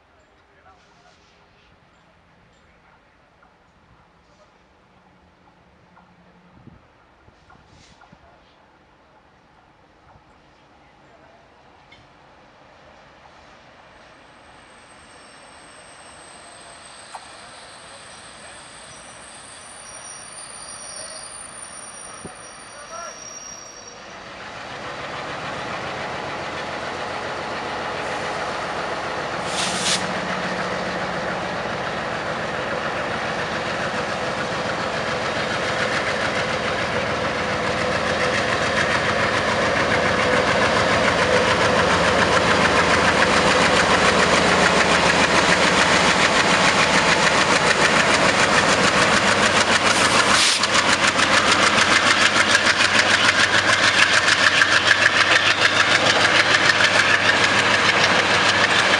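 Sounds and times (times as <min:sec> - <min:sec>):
diesel locomotive engine: 0:00.0 - 0:58.9
high squeals: 0:14.5 - 0:24.2.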